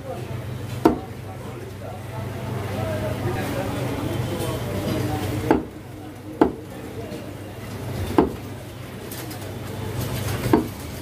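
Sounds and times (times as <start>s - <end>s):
cleaver chopping meat on wood: 0.8s - 1.1s, 5.5s - 5.7s, 6.4s - 6.6s, 8.2s - 8.4s.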